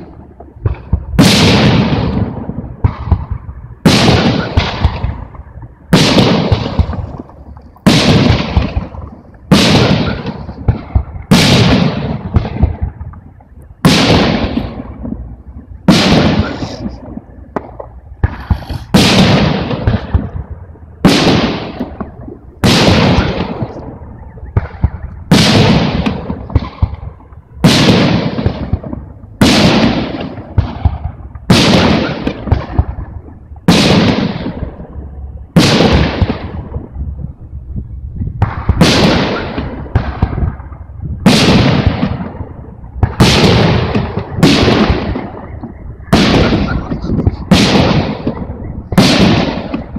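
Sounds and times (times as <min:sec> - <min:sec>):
firework shells bursting: 0:00.0 - 0:37.1, 0:38.2 - 0:49.9.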